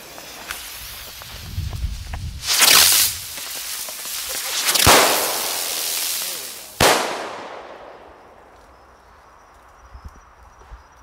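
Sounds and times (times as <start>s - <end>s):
fireworks spinning with hissing buzz: 0.0s - 8.5s
sharp firework bangs: 2.4s - 8.6s.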